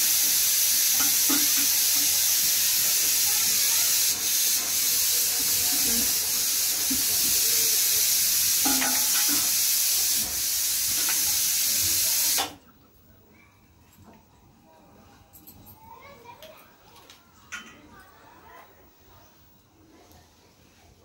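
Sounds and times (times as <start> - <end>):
loud steady hiss: 0.0 - 12.6.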